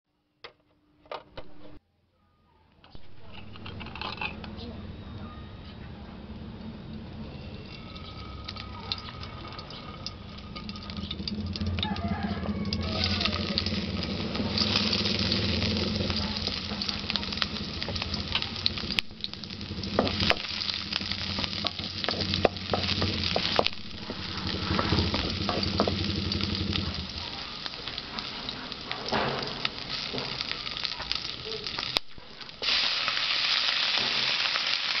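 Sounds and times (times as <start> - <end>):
onion sizzling in hot oil: 6.8 - 35.0
spatula scraping a wok: 7.2 - 31.3.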